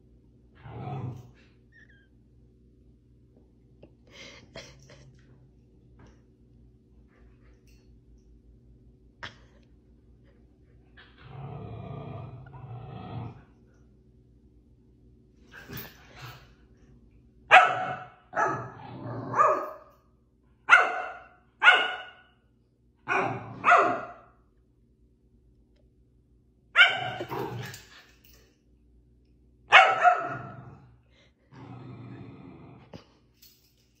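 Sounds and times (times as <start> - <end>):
dog barking: 17.5 - 18.7, 19.3 - 19.8, 20.7 - 22.3, 23.1 - 24.3, 26.8 - 27.2, 29.7 - 30.5.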